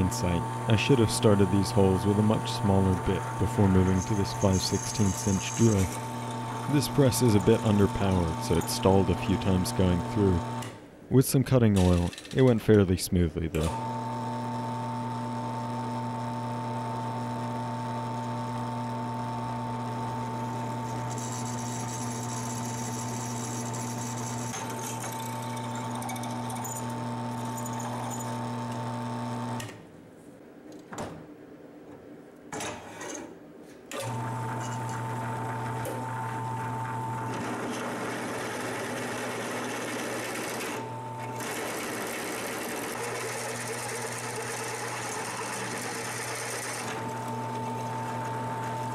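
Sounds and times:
drill press motor running: 0:00.0 - 0:10.8, 0:13.7 - 0:29.7, 0:34.0 - 0:48.9
drill cutting through steel: 0:03.3 - 0:08.7, 0:20.8 - 0:29.6, 0:34.0 - 0:48.9.

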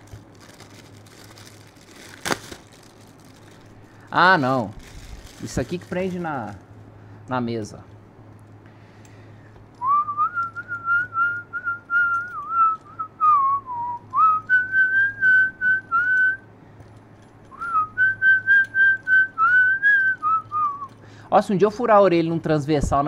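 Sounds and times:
person whistling a tune: 0:09.8 - 0:16.4, 0:17.5 - 0:21.0.

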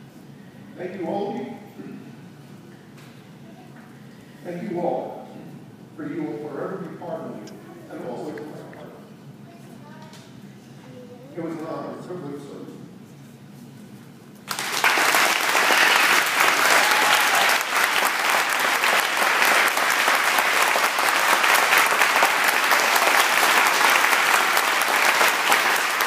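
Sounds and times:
audience applause: 0:14.5 - 0:26.0.

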